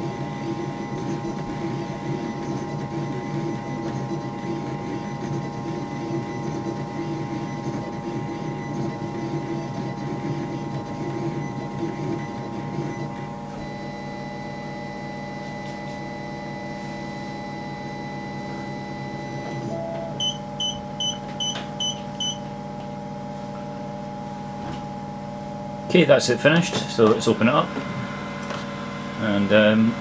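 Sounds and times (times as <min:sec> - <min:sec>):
printer motors whirring: 0:00.0 - 0:21.9, 0:26.4 - 0:30.0
fan hum: 0:18.4 - 0:30.0.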